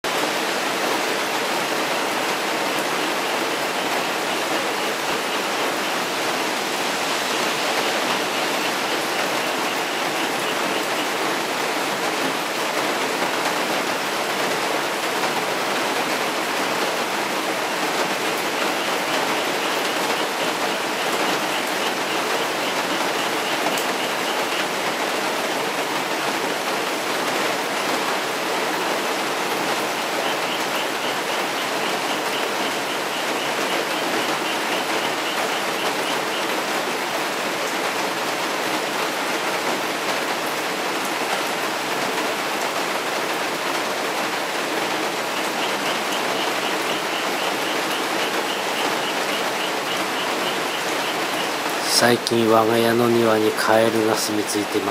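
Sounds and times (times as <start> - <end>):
heavy rain pouring: 0.0 - 54.9
frogs croaking: 7.3 - 11.3, 17.2 - 25.8, 29.4 - 37.3, 44.8 - 54.9.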